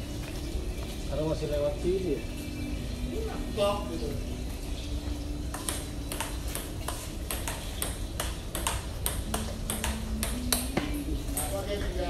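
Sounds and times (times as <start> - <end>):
table tennis ball clicks: 5.5 - 11.5.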